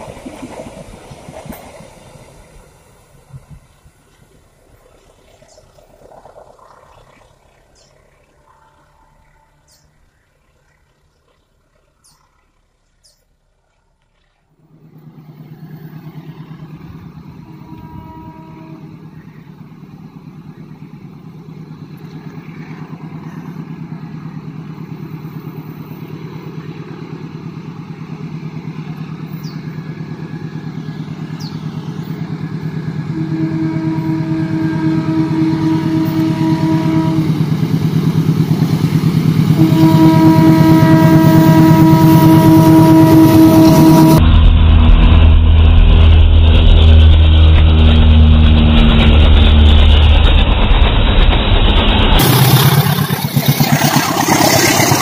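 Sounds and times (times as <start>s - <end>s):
diesel locomotive engine: 0.0s - 55.0s
train horn blasts: 8.4s - 10.0s, 16.8s - 19.4s, 32.0s - 38.6s, 39.3s - 45.2s.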